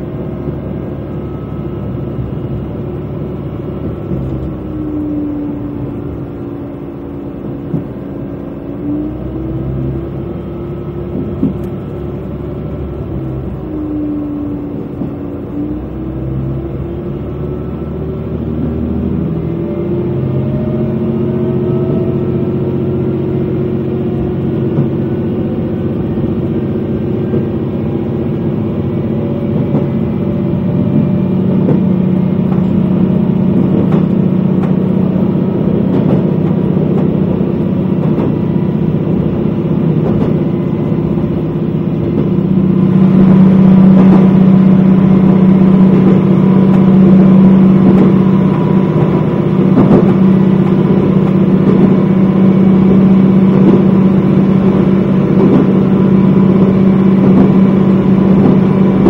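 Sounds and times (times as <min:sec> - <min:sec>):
railcar engine drone: 0:00.0 - 0:59.0
wheels clicking on rails: 0:24.6 - 0:59.0.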